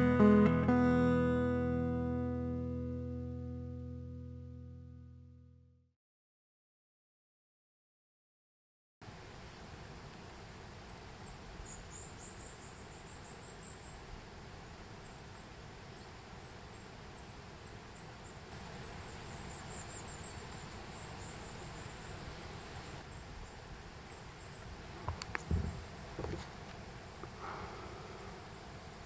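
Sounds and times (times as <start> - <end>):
faint outdoor hiss: 9.0 - 29.0
insects chirping in trills: 10.4 - 29.0.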